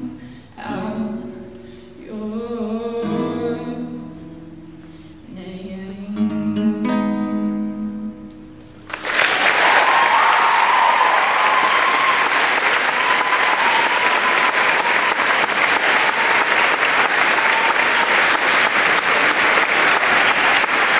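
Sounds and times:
audience applause: 8.9s - 20.9s.

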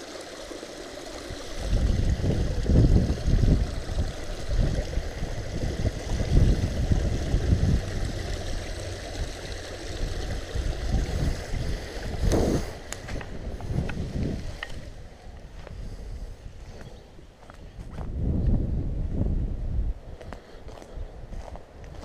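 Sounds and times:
wind and clothing rubbing microphone: 1.2s - 22.0s.

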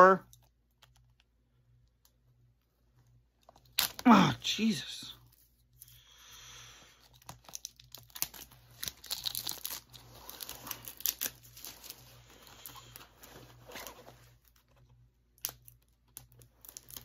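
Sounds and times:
packaging tearing and crinkling: 3.5s - 4.3s, 7.0s - 14.6s, 15.4s - 17.0s.

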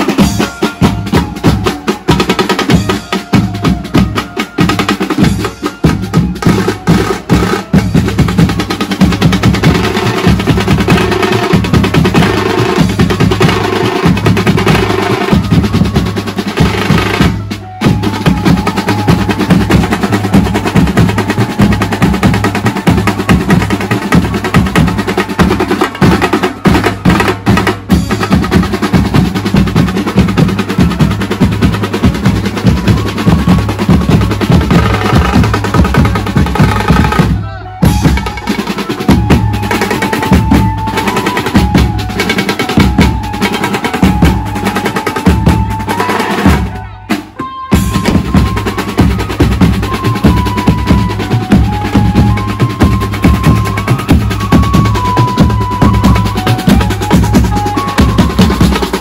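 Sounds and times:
fast band drumming: 0.0s - 59.0s
held melody line: 0.0s - 59.0s.

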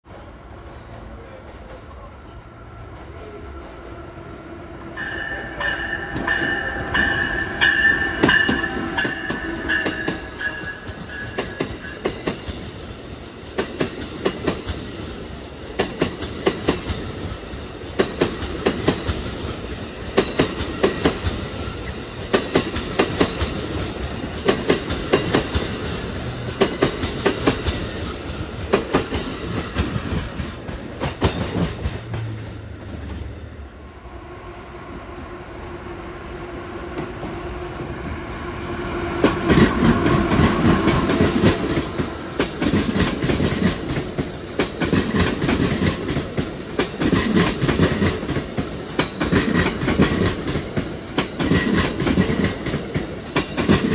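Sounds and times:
electric locomotive hum: 0.1s - 53.9s
train wheels clacking on rail joints: 5.6s - 33.3s, 39.2s - 53.9s.

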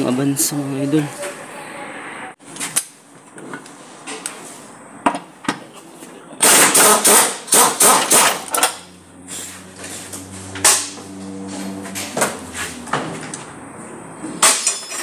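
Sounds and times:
impact wrench hammering: 6.4s - 8.8s.

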